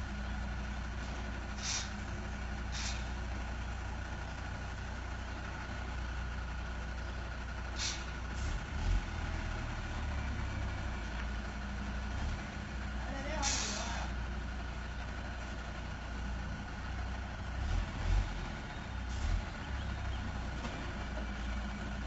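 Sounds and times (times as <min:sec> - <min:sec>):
diesel truck engine idling: 0:00.0 - 0:22.0
air hissing: 0:01.6 - 0:02.0, 0:02.7 - 0:03.2.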